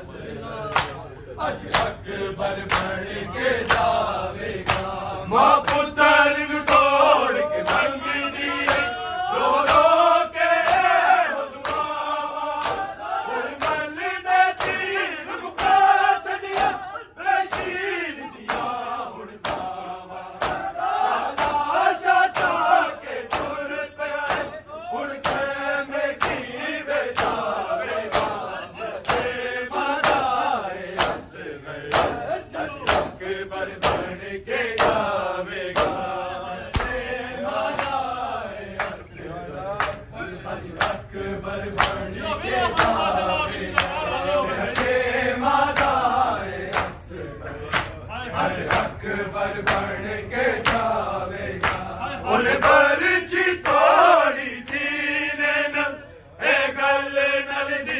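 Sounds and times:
crowd of men chanting: 0:00.0 - 0:57.9
hand slaps on chests: 0:00.7 - 0:01.0, 0:01.6 - 0:02.0, 0:02.6 - 0:03.0, 0:03.6 - 0:04.0, 0:04.6 - 0:06.0, 0:07.6 - 0:08.0, 0:08.6 - 0:09.0, 0:09.6 - 0:10.0, 0:10.6 - 0:12.0, 0:12.6 - 0:14.9, 0:15.5 - 0:15.9, 0:16.5 - 0:16.8, 0:17.4 - 0:17.8, 0:18.4 - 0:18.8, 0:19.4 - 0:19.8, 0:20.4 - 0:21.7, 0:22.3 - 0:22.7, 0:23.3 - 0:24.6, 0:25.2 - 0:26.5, 0:27.1 - 0:28.4, 0:29.0 - 0:31.3, 0:31.9 - 0:33.2, 0:33.8 - 0:34.2, 0:34.8 - 0:36.1, 0:36.7 - 0:38.0, 0:38.7 - 0:39.0, 0:40.8 - 0:41.1, 0:41.7 - 0:42.1, 0:44.7 - 0:45.0, 0:45.7 - 0:46.0, 0:46.7 - 0:47.0, 0:47.7 - 0:48.0, 0:49.6 - 0:50.0, 0:50.6 - 0:51.0, 0:51.6 - 0:51.9, 0:54.6 - 0:54.9.

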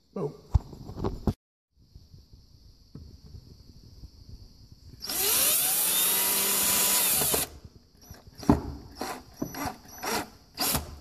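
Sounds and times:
power drill driving a screw: 0:05.0 - 0:11.0.

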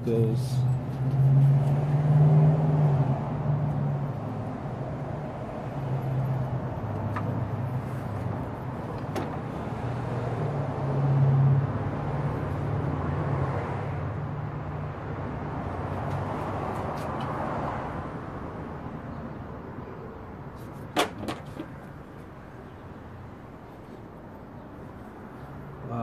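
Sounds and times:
vehicle engine humming: 0:00.1 - 0:18.2.

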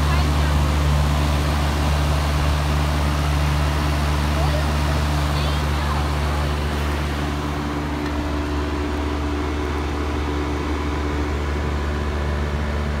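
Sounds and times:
air conditioner unit humming: 0:00.0 - 0:13.0.

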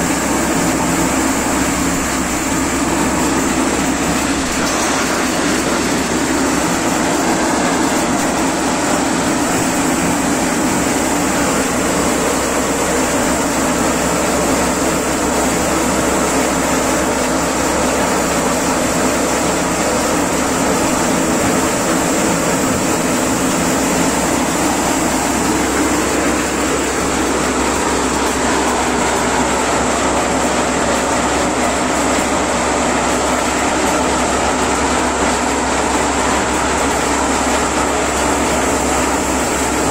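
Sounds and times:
maize sheller machine running: 0:00.0 - 0:39.9.

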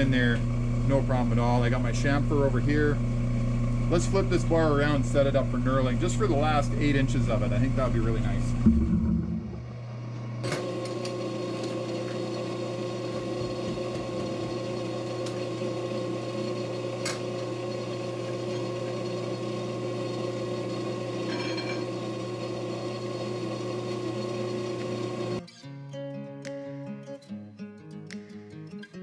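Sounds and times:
metal lathe motor and gear hum: 0:10.4 - 0:25.4.

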